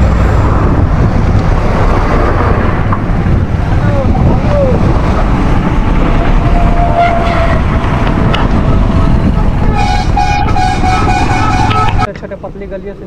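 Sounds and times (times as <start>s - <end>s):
wind on microphone: 0.0s - 12.1s
road traffic: 0.0s - 13.0s
pulsing multi-tone horn blast: 6.0s - 12.1s
vehicle horn short note: 9.7s - 12.1s.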